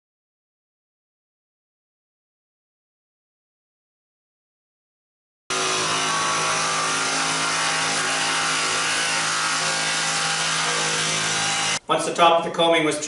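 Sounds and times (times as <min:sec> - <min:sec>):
oscillating multi-tool cutting: 0:05.5 - 0:11.8.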